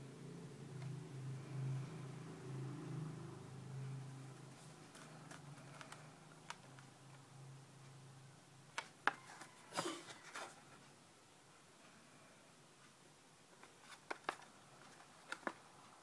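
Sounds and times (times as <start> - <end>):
faint low hum: 0.0 - 16.0
packaging rustle: 13.7 - 15.7.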